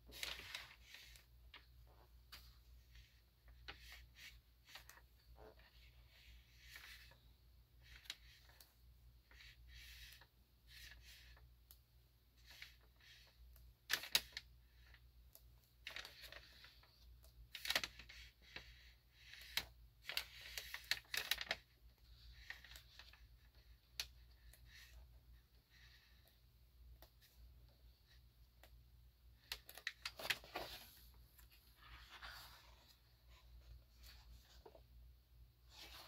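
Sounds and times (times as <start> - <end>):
pages turning: 0.1 - 7.2, 15.9 - 16.9, 29.4 - 34.9, 35.6 - 36.0.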